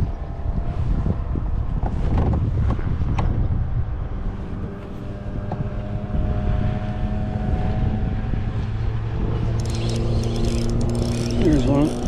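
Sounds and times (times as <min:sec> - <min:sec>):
boat motor humming: 0:08.3 - 0:12.0
fishing rod clicks and rattles: 0:09.5 - 0:12.0.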